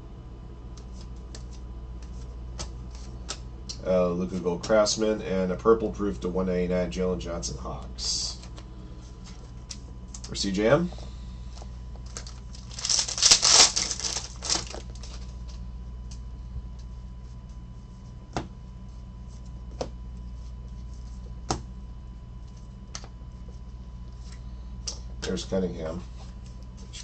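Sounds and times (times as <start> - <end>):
steady low hum: 0.0 - 27.0
cards rustling: 0.8 - 3.4, 12.0 - 16.2
cards clicking: 12.1 - 15.2.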